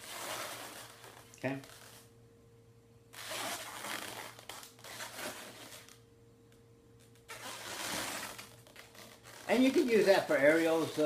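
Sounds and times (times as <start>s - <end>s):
balloons rubbing and crinkling: 0.0s - 2.1s, 3.1s - 6.0s, 7.2s - 11.0s.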